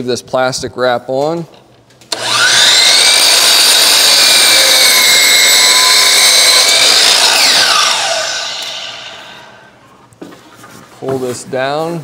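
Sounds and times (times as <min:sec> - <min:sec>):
miter saw cutting wood: 0:02.1 - 0:09.8.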